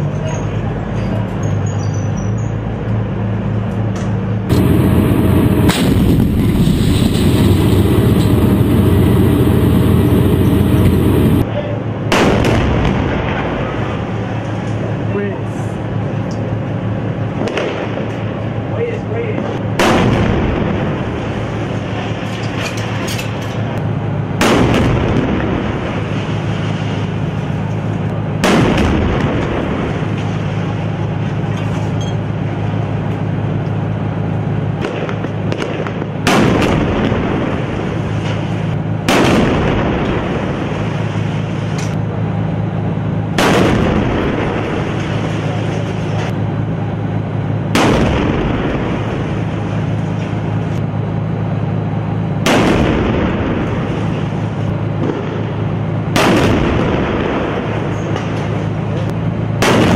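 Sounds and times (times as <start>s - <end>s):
steady low drone: 2.7s - 59.9s
heavy gun blasts: 4.5s - 11.5s, 12.1s - 14.1s, 19.4s - 22.1s, 24.4s - 26.2s, 28.4s - 30.6s, 34.8s - 38.2s, 39.0s - 41.0s, 43.4s - 45.6s, 47.7s - 49.7s, 52.4s - 54.4s, 55.0s - 58.6s, 59.6s - 59.9s.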